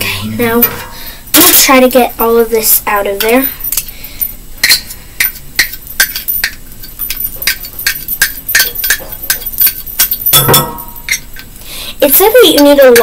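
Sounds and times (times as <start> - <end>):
utensil clinking in metal cup: 4.6 - 11.5.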